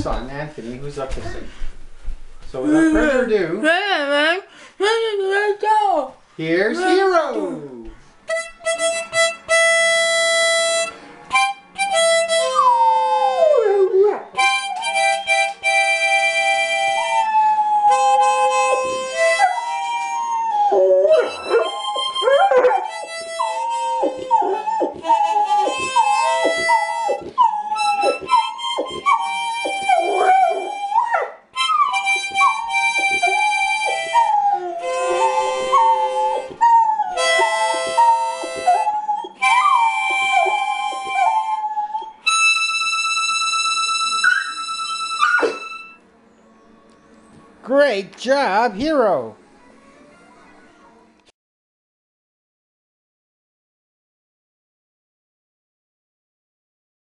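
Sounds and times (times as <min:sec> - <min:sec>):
harmonica: 0:08.3 - 0:46.0
dog howling: 0:12.4 - 0:14.5, 0:17.0 - 0:42.2, 0:44.2 - 0:45.9.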